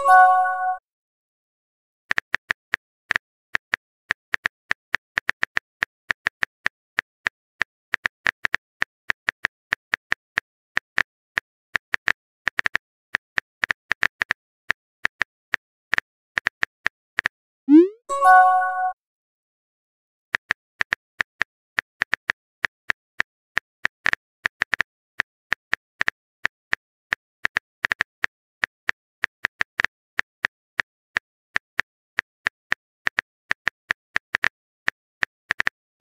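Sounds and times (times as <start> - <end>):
short chime: 18.1 - 19.0.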